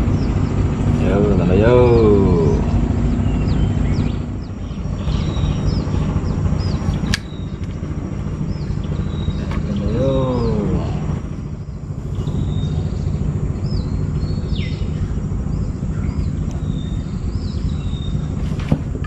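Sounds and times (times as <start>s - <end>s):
bird chirping: 0.0s - 19.0s
low rumble: 0.0s - 19.0s
sharp click: 7.0s - 7.8s.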